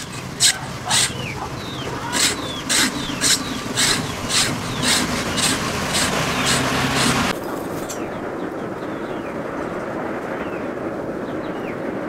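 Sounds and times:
rhythmic rasping strokes: 0.0 - 7.3.

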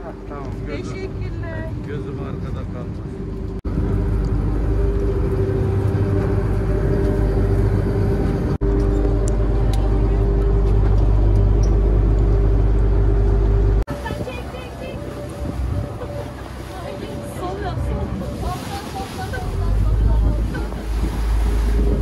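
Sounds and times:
boat engine droning: 0.0 - 22.0.

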